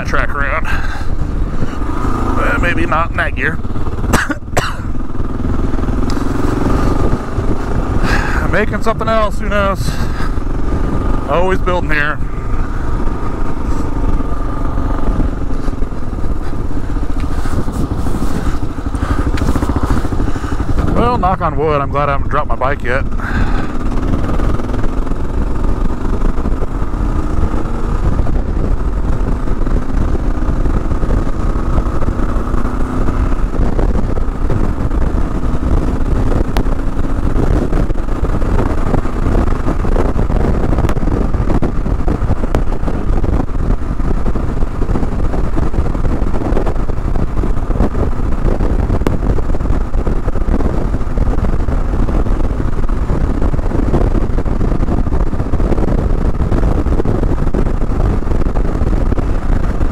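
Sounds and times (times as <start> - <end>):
motorcycle engine accelerating: 0.0 - 59.9
wind rumbling on microphone: 0.0 - 59.9.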